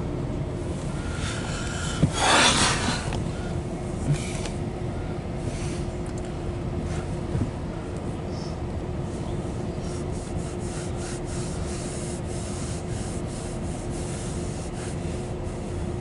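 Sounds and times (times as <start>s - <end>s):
low hum: 0.0s - 13.8s
steel wheels rumbling on rails: 0.6s - 4.5s.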